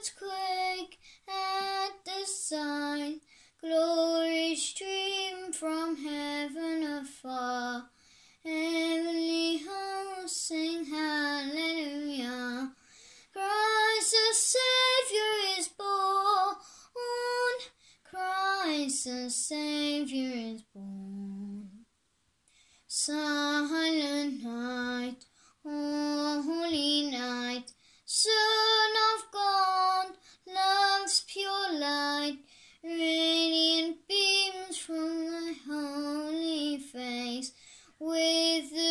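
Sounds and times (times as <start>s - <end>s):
boy singing unaccompanied: 0.0s - 21.8s, 22.9s - 38.9s.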